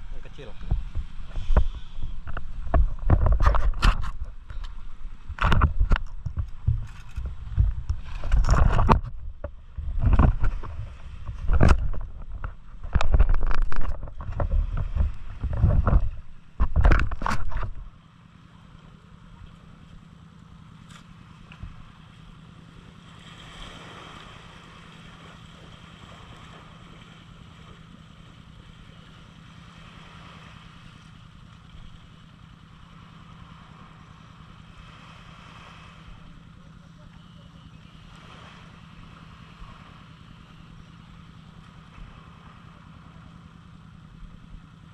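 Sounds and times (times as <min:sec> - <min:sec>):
wind buffeting microphone: 0:00.0 - 0:18.0
small waves on shore: 0:00.0 - 0:44.9
steady low hum: 0:00.0 - 0:44.9.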